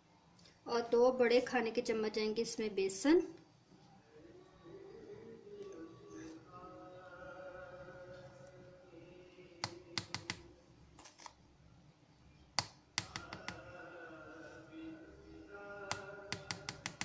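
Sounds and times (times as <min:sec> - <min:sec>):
spoon tapping on blender jug: 0:09.6 - 0:10.4, 0:15.9 - 0:17.0.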